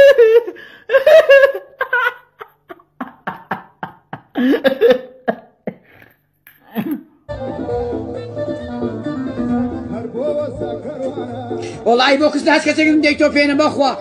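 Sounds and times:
man laughing in short bursts: 0.0s - 6.0s, 6.6s - 7.1s
music: 7.3s - 14.0s.

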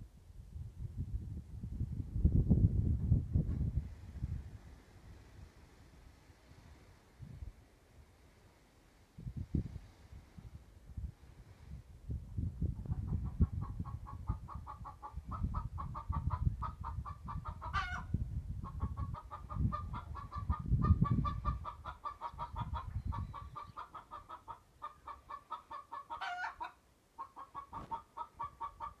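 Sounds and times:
chickens clucking: 12.8s - 29.0s
chicken squawk: 13.6s - 29.0s.

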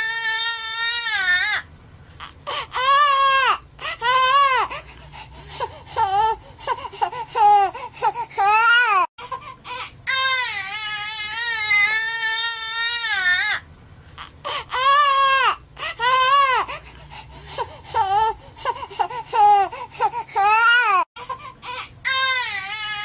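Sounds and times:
baby crying: 0.0s - 1.6s, 2.2s - 4.8s, 7.0s - 13.6s, 14.2s - 16.8s, 17.9s - 23.0s.

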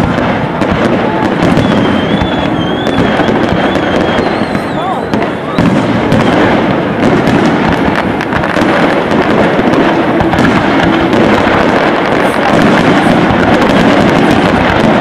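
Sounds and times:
fireworks bursting and crackling: 0.0s - 15.0s.

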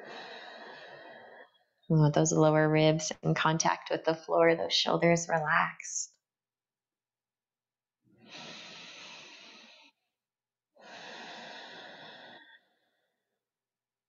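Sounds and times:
woman breathing out: 0.0s - 1.6s, 8.2s - 10.0s, 10.8s - 13.1s
woman breathing in deeply: 0.0s - 1.8s, 8.2s - 10.1s, 10.8s - 13.4s.

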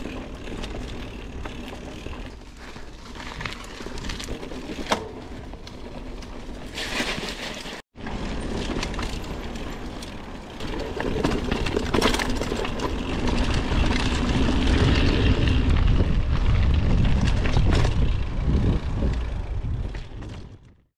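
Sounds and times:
bike rattles and knocks: 0.0s - 20.8s
wind buffeting microphone: 10.8s - 20.8s.

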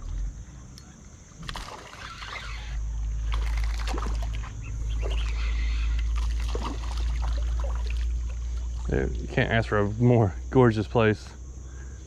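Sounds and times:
water splashing and sloshing: 1.4s - 9.5s.

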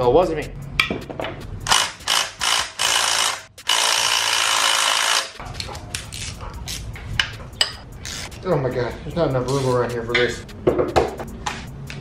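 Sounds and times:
impact driver running: 1.7s - 5.4s
hand tool clicks and knocks: 5.5s - 7.9s.

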